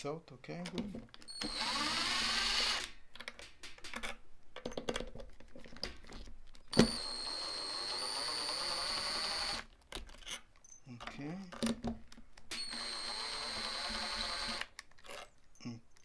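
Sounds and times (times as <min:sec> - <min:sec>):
cordless drill running: 0:01.3 - 0:02.9, 0:06.7 - 0:09.7, 0:12.5 - 0:14.8
clicks and taps: 0:03.2 - 0:06.9.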